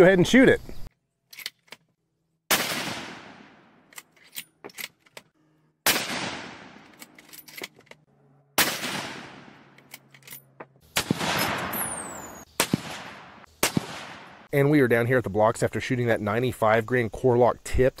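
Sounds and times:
rifle shots: 2.5s - 3.9s, 5.8s - 7.1s, 8.6s - 9.8s, 10.9s - 14.5s.

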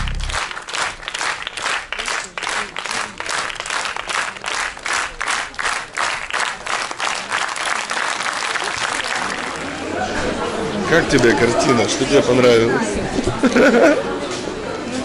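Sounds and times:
audience clapping in rhythm: 0.0s - 9.8s.

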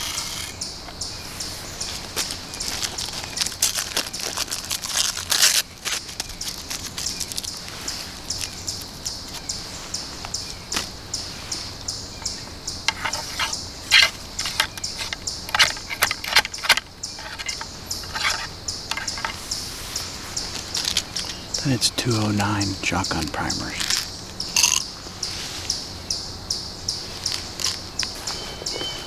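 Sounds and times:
insects chirring: 0.0s - 29.0s
ramrod knocking and scraping: 12.9s - 19.4s.

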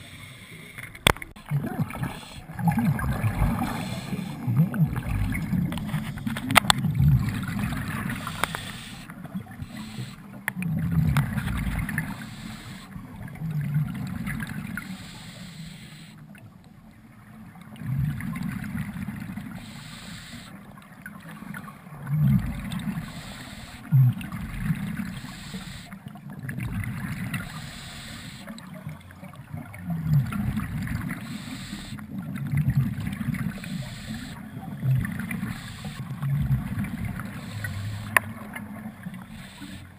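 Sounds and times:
underwater regulator bubbles gurgling: 0.0s - 39.9s
soft hiss: 33.3s - 34.4s, 35.3s - 39.9s.

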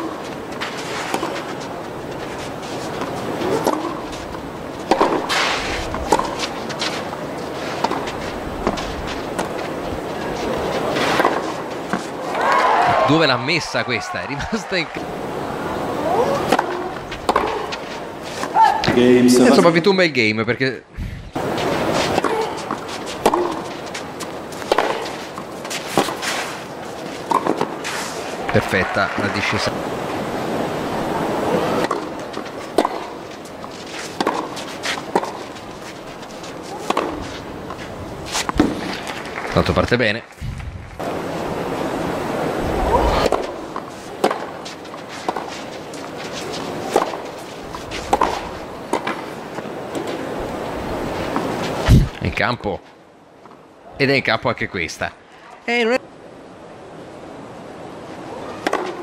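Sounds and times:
background hiss: 0.0s - 59.0s
tennis racket striking ball: 1.0s - 1.6s, 2.9s - 4.2s, 4.8s - 7.0s, 7.8s - 9.8s, 10.4s - 12.1s, 16.4s - 17.8s, 21.8s - 26.4s, 27.2s - 27.9s, 31.8s - 39.2s, 43.2s - 50.2s, 58.6s - 59.0s.

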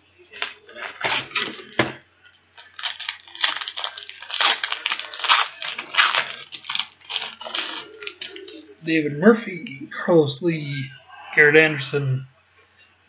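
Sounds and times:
wrapper crinkling and tearing: 0.3s - 8.6s.

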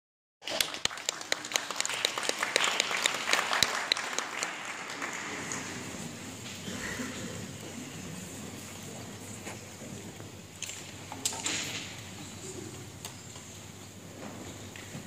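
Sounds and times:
audience applauding: 0.4s - 6.4s.

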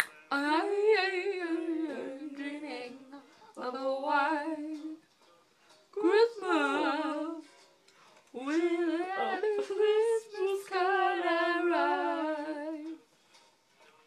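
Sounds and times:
woman singing unaccompanied: 0.0s - 5.0s, 5.9s - 7.5s, 8.3s - 13.0s.

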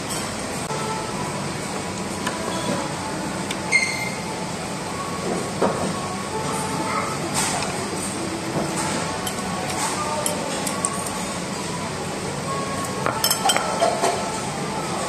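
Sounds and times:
restaurant dining room hum: 0.0s - 15.0s
tableware clinking: 12.8s - 14.4s.

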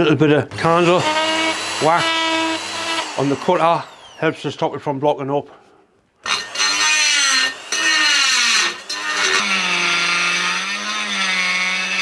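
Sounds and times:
die grinder motor whine: 0.5s - 4.2s, 6.2s - 12.0s.

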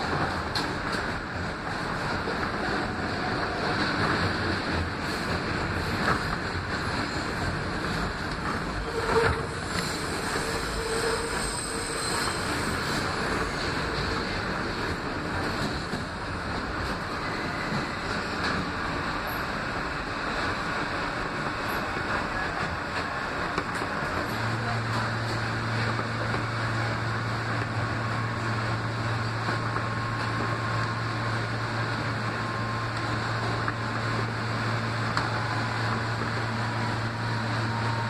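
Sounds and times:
subway train rumbling in tunnel: 0.0s - 38.0s.

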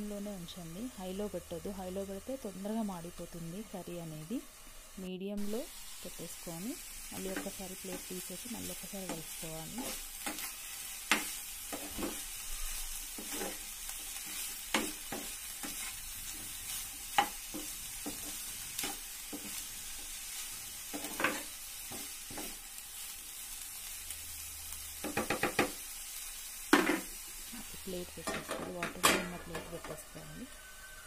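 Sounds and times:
vegetables sizzling in a frying pan: 0.0s - 31.0s
spatula scraping and knocking pan: 9.0s - 20.2s, 20.8s - 22.6s.

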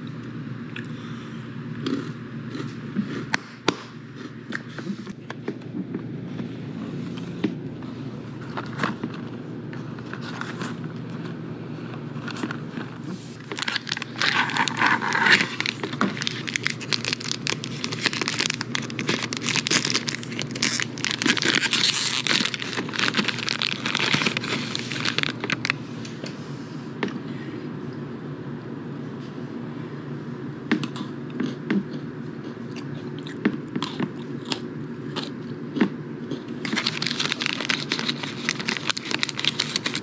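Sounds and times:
foil wrapper crinkling and tearing: 12.2s - 25.8s, 36.6s - 40.0s.

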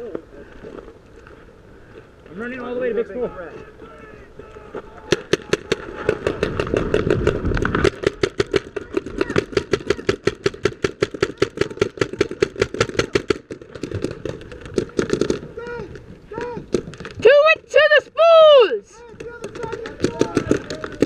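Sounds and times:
paintball markers firing: 5.1s - 15.5s, 19.1s - 21.0s.

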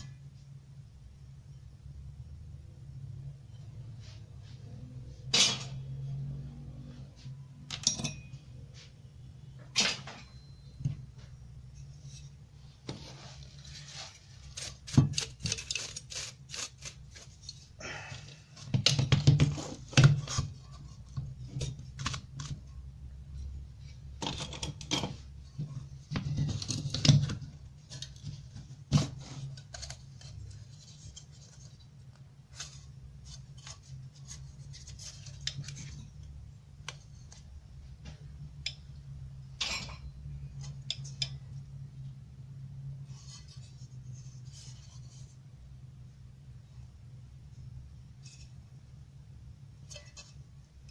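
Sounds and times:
metal brackets on wooden workbench: 5.3s - 6.0s, 7.6s - 8.6s.

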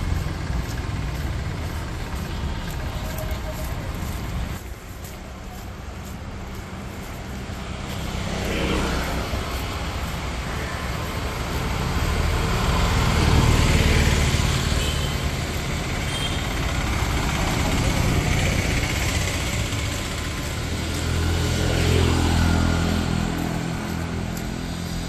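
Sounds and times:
street traffic rumbling: 0.0s - 25.0s
vehicle passing by: 6.5s - 25.0s.

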